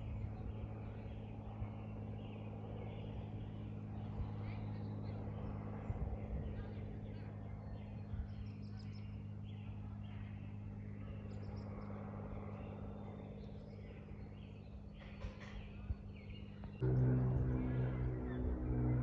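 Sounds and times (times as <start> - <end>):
birds chirping: 0.0 - 19.0
steady low hum: 0.0 - 19.0
deep droning hum: 16.0 - 19.0.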